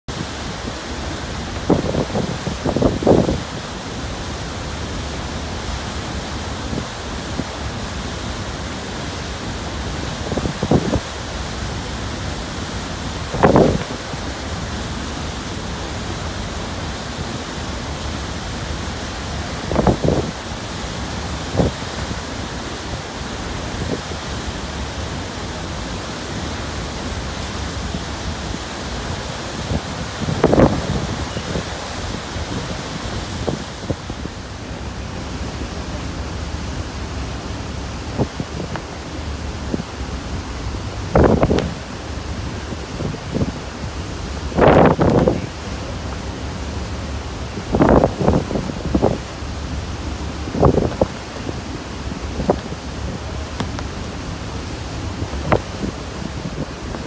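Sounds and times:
wind over deck: 0.0 - 57.0
wind gusts buffeting microphone: 0.1 - 3.8, 10.0 - 11.4, 12.4 - 14.5, 19.4 - 20.5, 26.8 - 57.0
ferry wake churning: 0.1 - 57.0.

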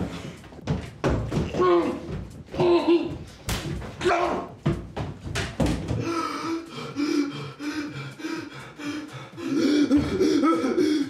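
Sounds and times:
man sobbing and whimpering: 6.0 - 11.0.

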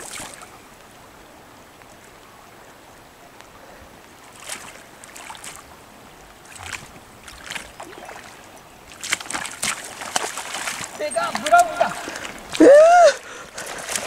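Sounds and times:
water splashes in shallows: 0.0 - 0.6, 4.2 - 14.0
river water rushing: 0.0 - 14.0.

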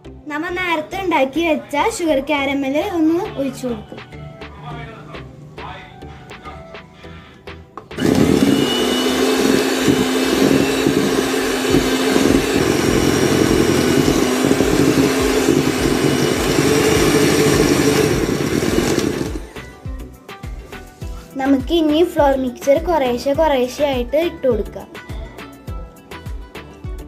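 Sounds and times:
electric hand mixer whirring: 8.0 - 19.7.

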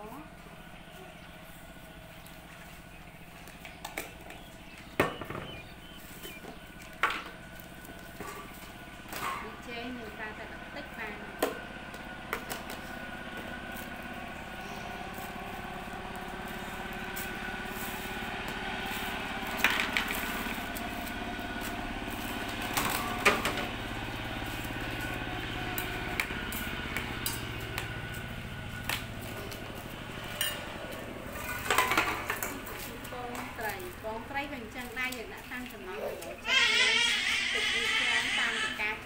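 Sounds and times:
small engine running: 0.0 - 39.0.

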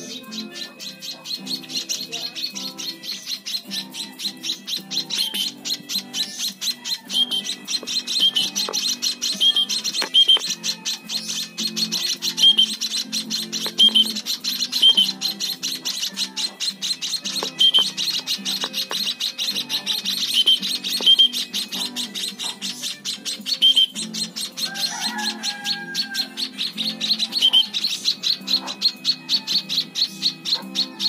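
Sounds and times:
background music: 0.0 - 31.0
young birds chirping rapidly: 0.0 - 31.0.

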